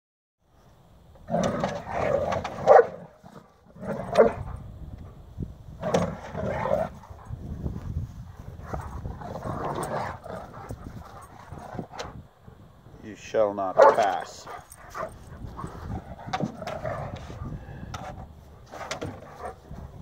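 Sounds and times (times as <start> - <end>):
dogs barking and yipping: 2.4 - 3.2, 4.0 - 4.6, 8.3 - 12.2, 13.8 - 17.6, 18.4 - 20.0.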